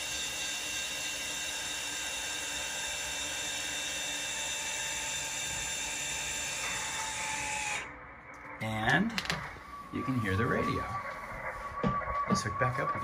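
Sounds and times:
small electric motor whining: 0.0 - 8.0.

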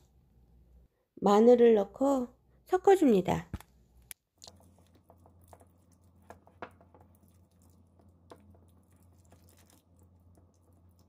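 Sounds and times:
low steady hum: 0.0 - 11.0
brush stirring wet mixture: 4.4 - 11.0.

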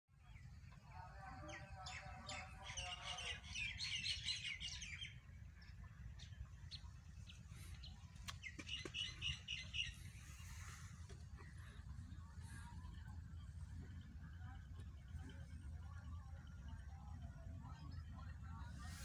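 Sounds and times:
small birds chirping: 0.2 - 13.1
steady low rumble: 4.5 - 19.0.

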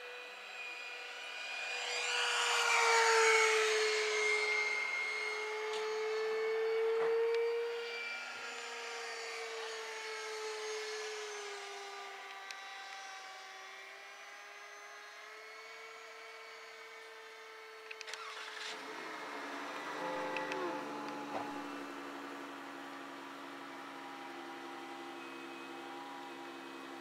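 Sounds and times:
electric ducted-fan jet whine: 0.0 - 27.0
model airplane propeller whining: 0.0 - 27.0
clicks: 17.9 - 18.4.

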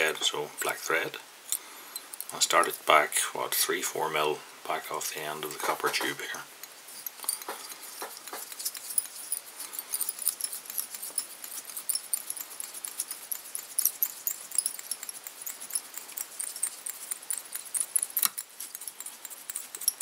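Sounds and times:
thread winding ticks and scratches: 5.7 - 20.0.

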